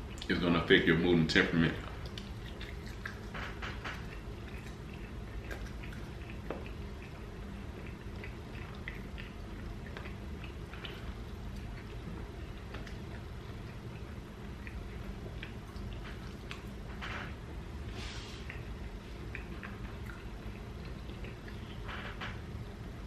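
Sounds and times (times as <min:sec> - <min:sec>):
man chewing food: 0:00.0 - 0:00.4, 0:01.7 - 0:23.0
steady low hum: 0:00.0 - 0:23.0.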